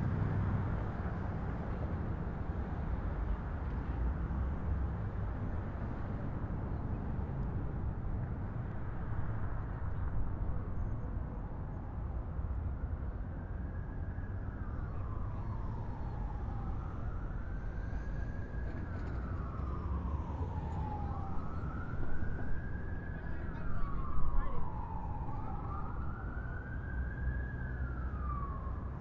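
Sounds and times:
emergency vehicle siren wailing: 8.8 - 29.0.

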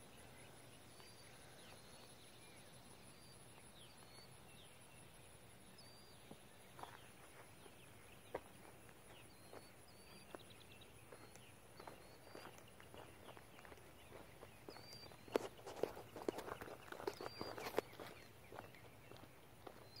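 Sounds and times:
faint bird chirps: 0.0 - 20.0
faint sharp clicks: 11.3 - 11.5.

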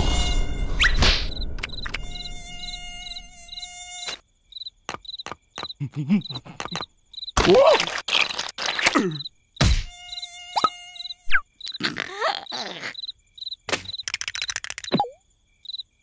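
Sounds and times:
cartoon mosquito buzzing: 0.0 - 15.8
cartoon vocal sounds: 5.8 - 6.8, 7.4 - 9.3, 11.7 - 13.1.

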